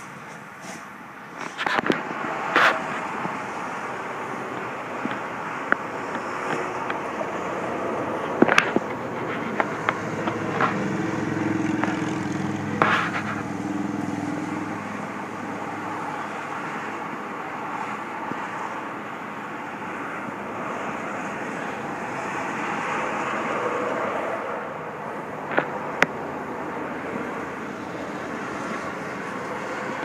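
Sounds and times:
outdoor background noise: 0:00.0 - 0:30.0.

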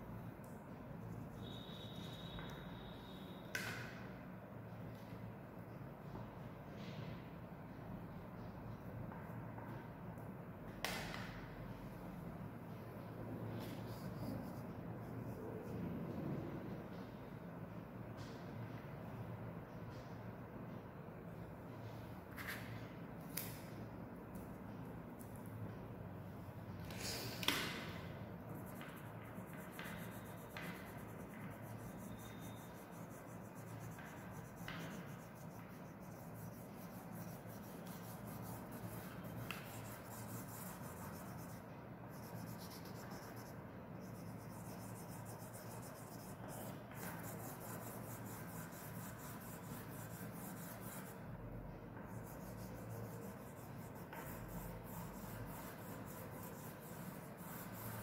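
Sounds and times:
crayon rubbing on paper: 0:13.6 - 0:15.9, 0:28.4 - 0:51.3, 0:52.1 - 0:58.0.

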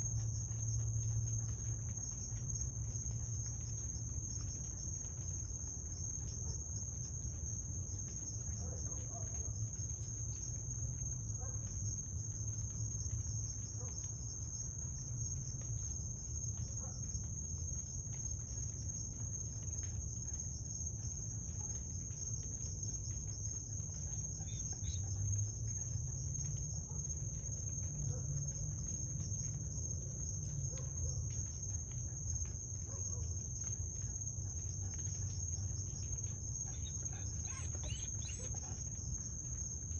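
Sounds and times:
crickets trilling: 0:00.0 - 0:39.9.

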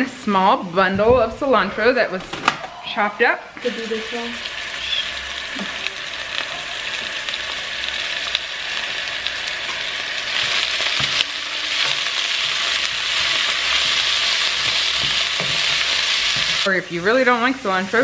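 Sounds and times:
food sizzling in oil: 0:02.8 - 0:18.0
wooden spoon stirring: 0:10.4 - 0:16.7.

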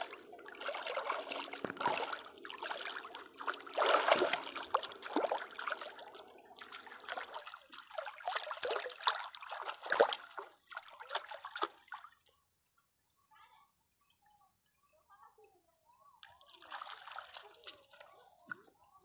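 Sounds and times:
stream water splashing: 0:00.0 - 0:12.2, 0:16.5 - 0:18.0.

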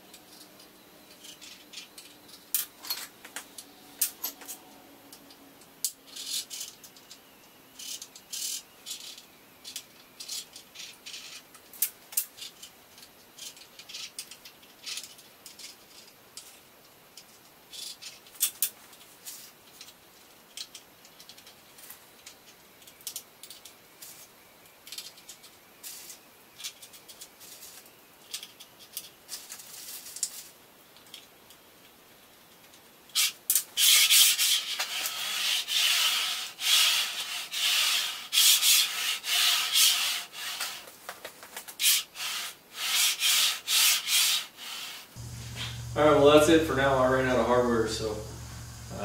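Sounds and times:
rubbing scraping strokes: 0:33.8 - 0:40.9.

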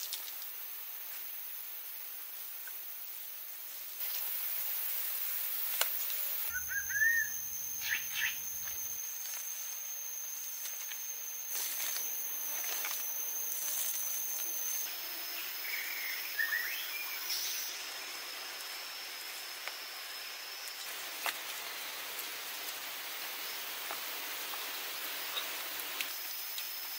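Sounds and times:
outdoor ambience hiss: 0:00.0 - 0:26.9
high insect drone: 0:00.2 - 0:26.9
short bird chirps: 0:06.5 - 0:08.6.

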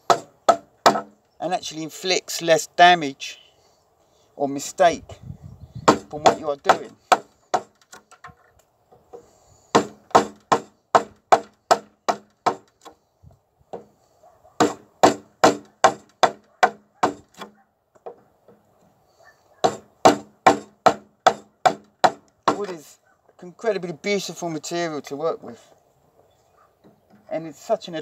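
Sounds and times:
mallet striking wood chisel: 0:00.1 - 0:01.2, 0:19.6 - 0:22.7.

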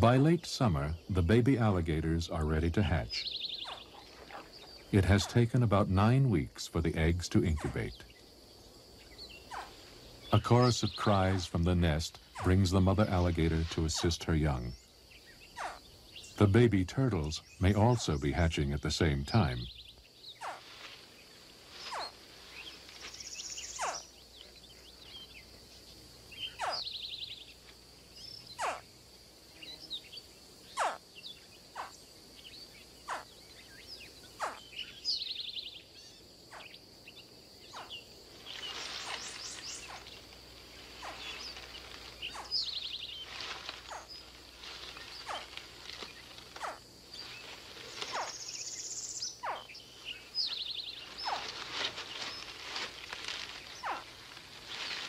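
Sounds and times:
high insect drone: 0:00.0 - 0:55.0.

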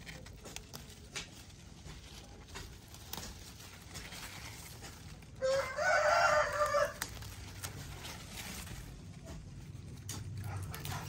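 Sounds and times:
faint rustling of leaves: 0:00.0 - 0:11.0
rooster crowing: 0:05.4 - 0:07.8.

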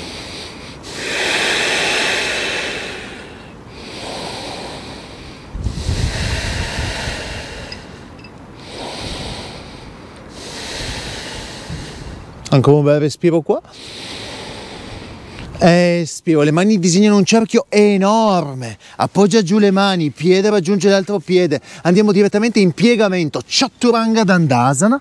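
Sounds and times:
breath blowing on microphone: 0:00.0 - 0:12.4, 0:13.7 - 0:15.6
deep hissing breathing: 0:00.0 - 0:12.4, 0:13.7 - 0:15.6, 0:18.8 - 0:19.0, 0:21.6 - 0:22.0.

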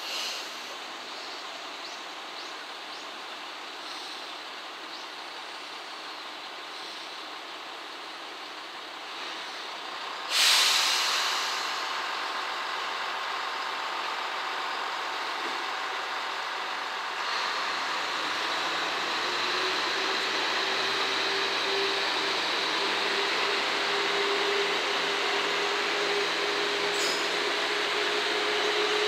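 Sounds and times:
loud hiss of air brakes: 0:00.0 - 0:01.5, 0:03.8 - 0:04.5, 0:06.6 - 0:07.4, 0:09.1 - 0:12.3, 0:17.2 - 0:29.0
diesel railcar engines running: 0:00.0 - 0:29.0.

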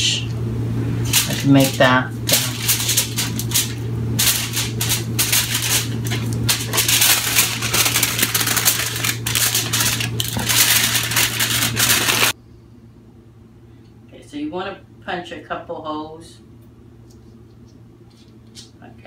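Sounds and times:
steady low hum: 0:00.0 - 0:19.0
aluminium foil crinkling: 0:01.0 - 0:12.4.

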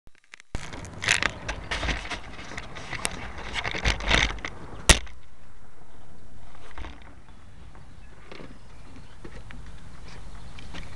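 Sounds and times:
camera handling rustling and scraping: 0:00.2 - 0:05.2.

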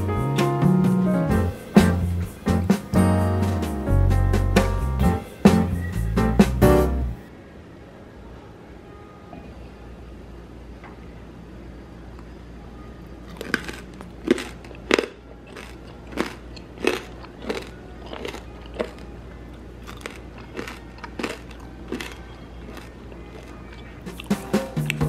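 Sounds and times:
crisp crunching of fried pork: 0:13.2 - 0:25.0.

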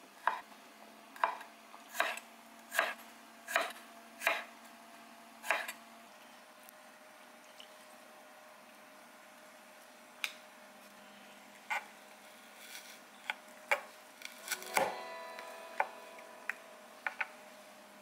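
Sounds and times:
oven electronic melody: 0:14.4 - 0:18.0.

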